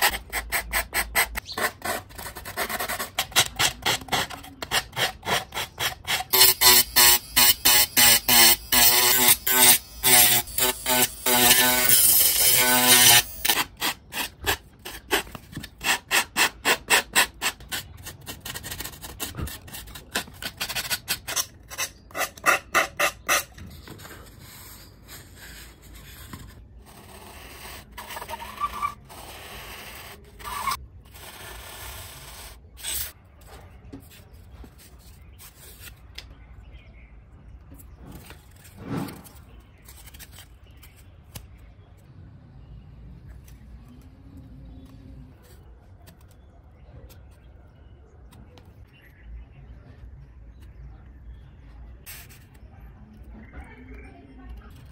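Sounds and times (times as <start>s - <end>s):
foam being rubbed and sanded: 0.0s - 33.1s
pencil marking lines on foam: 0.0s - 33.1s
scraping and scratching on foam: 0.0s - 36.2s, 37.6s - 41.6s, 52.0s - 53.2s.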